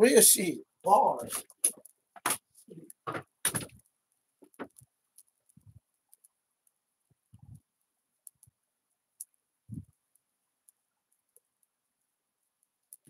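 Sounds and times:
faint high hiss: 0.0s - 1.5s
faint clicks: 3.7s - 8.6s.

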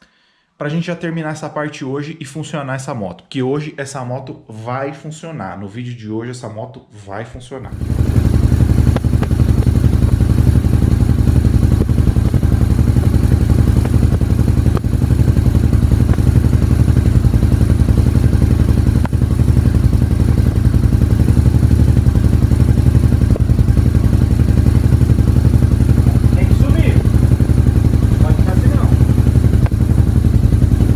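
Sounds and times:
motorcycle engine idling: 7.7s - 30.9s.

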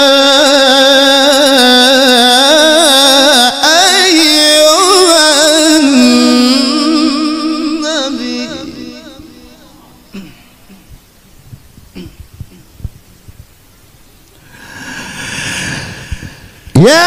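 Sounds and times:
man reciting in sung note: 0.0s - 10.9s, 16.7s - 17.0s
breath drawn in: 14.4s - 16.7s.

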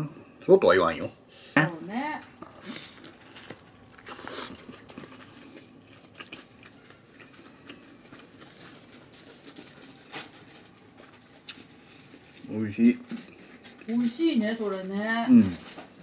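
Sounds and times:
crunching taco shell: 2.2s - 13.9s.

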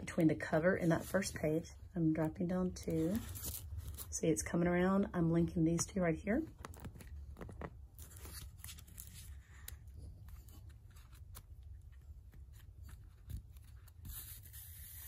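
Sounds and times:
paper rustling: 6.6s - 15.0s
thread drawn through paper: 12.3s - 15.0s.

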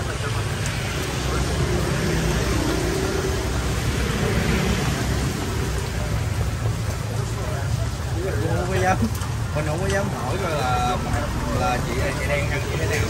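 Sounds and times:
passing motorbike and car traffic: 0.0s - 13.0s
wet road hiss: 0.0s - 13.0s.

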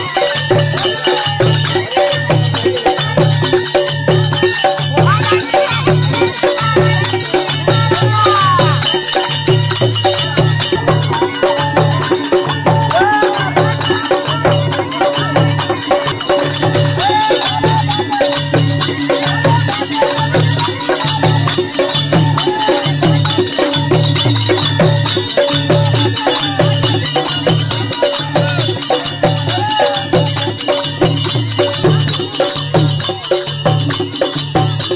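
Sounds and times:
jingling percussion rattling: 0.0s - 34.9s
steady drum beat: 0.0s - 34.9s
person singing: 4.9s - 23.7s.

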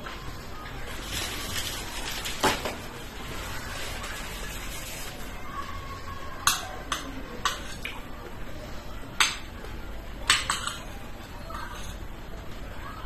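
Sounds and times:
cutlery clinking against plate: 6.5s - 8.0s, 10.3s - 12.0s.

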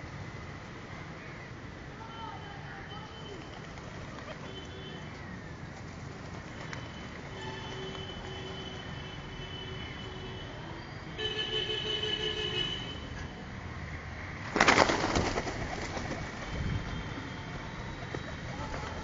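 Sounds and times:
pigeon wings flapping: 3.4s - 4.6s, 6.1s - 7.2s, 14.5s - 16.6s, 18.0s - 19.0s.

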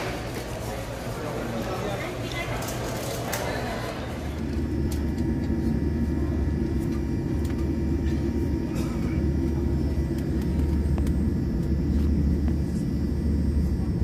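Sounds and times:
airliner cabin rumble: 4.2s - 14.0s.

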